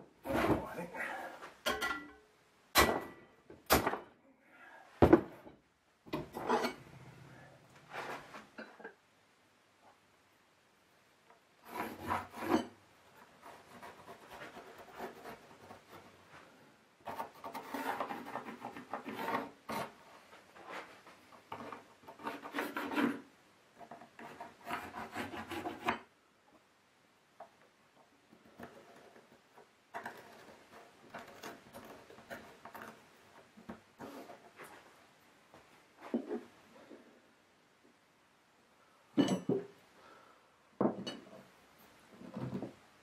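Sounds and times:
file scraping steel: 11.6 - 12.7.

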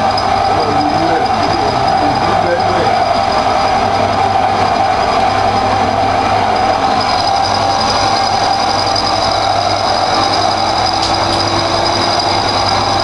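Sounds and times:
milling machine whine: 0.0 - 13.0.

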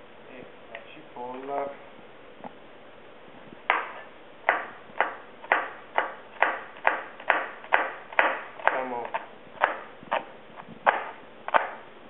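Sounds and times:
knife chopping on cutting board: 3.7 - 10.2, 10.9 - 11.8.

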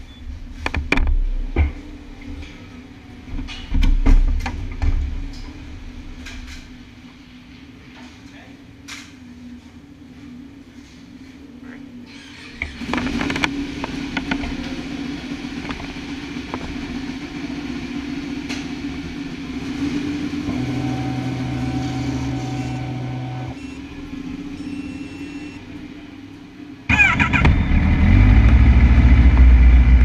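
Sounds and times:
motorcycle engines running: 0.0 - 30.0
motorcycle engine starting and idling: 12.1 - 26.3, 26.9 - 30.0.

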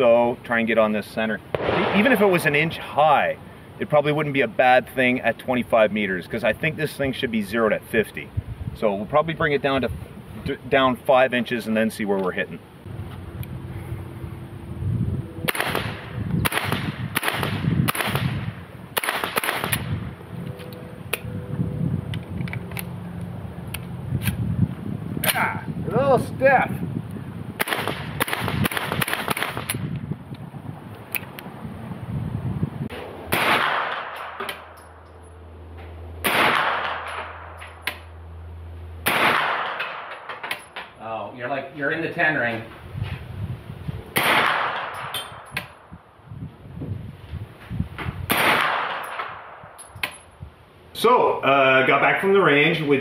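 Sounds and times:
fainter sharp cracks: 1.5 - 2.8, 15.5 - 19.9, 27.6 - 30.0, 39.0 - 40.6
gunshots with ringing echo: 1.5 - 2.9, 15.5 - 19.9, 33.3 - 34.8, 36.2 - 37.7, 39.0 - 40.4, 48.3 - 49.8.

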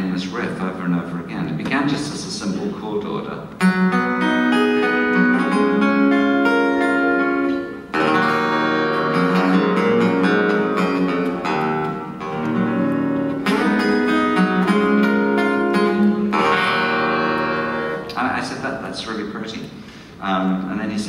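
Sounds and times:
acoustic guitar strummed chords: 3.6 - 18.2.

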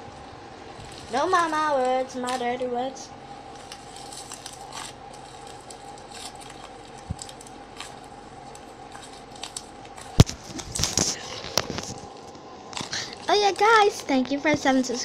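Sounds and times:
faint steady hum: 0.0 - 15.0
slime squishing and crackling: 0.2 - 2.8, 3.4 - 15.0
slime squelching: 0.6 - 15.0.

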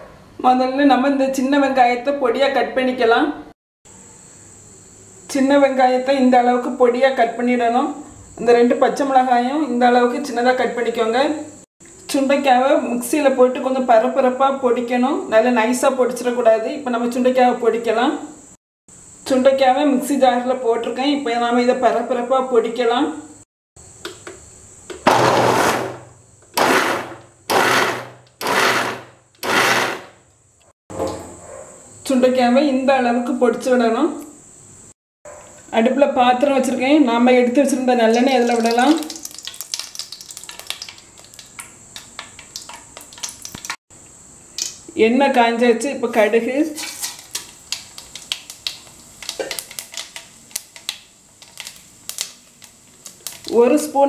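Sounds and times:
mixer grinder pulsing: 25.0 - 30.2
seeds popping in hot oil: 38.1 - 43.8, 47.1 - 53.6.

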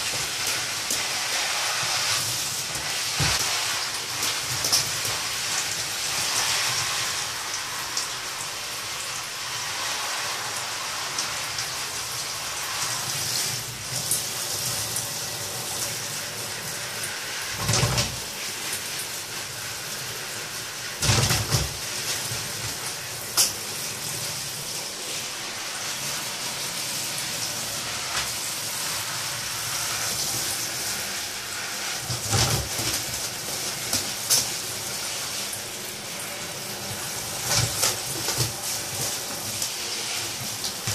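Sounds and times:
shower spray hissing: 0.0 - 40.9.

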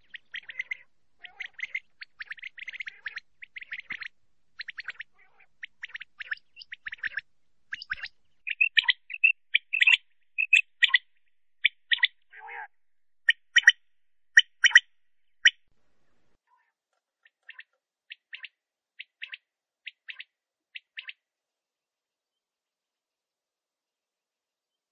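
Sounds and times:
quail calling: 0.0 - 15.6.

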